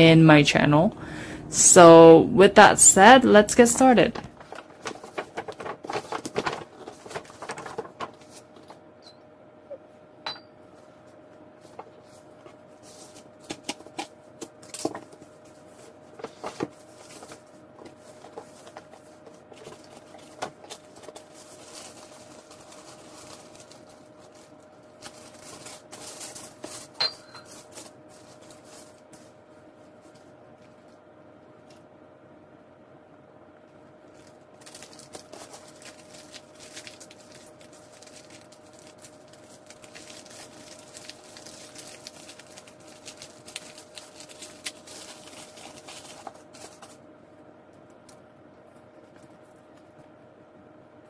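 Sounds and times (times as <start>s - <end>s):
faint steady hum: 0.0s - 51.0s
paper packaging rustling: 3.8s - 8.8s, 11.6s - 30.9s, 34.0s - 47.1s.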